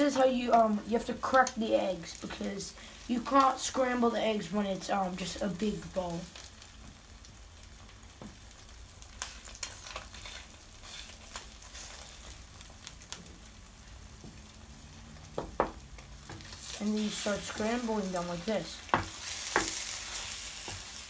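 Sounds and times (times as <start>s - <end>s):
eggs sizzling in a pan: 0.0s - 21.0s
spatula scraping and tapping pan: 9.2s - 12.4s, 15.4s - 17.9s, 18.8s - 21.0s.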